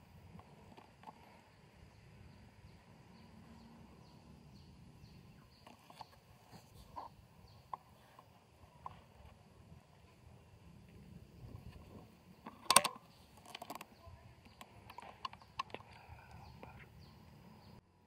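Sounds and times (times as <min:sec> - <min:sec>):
sharp click: 0:12.5 - 0:13.9.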